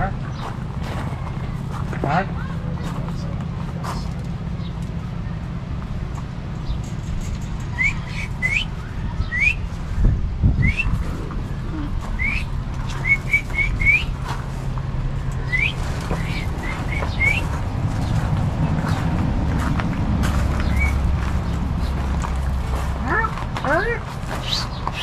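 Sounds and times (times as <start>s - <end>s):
steady low hum: 0.0s - 25.0s
parrots whistled chirps: 7.7s - 9.7s, 10.6s - 11.0s, 12.2s - 14.1s, 15.4s - 17.5s.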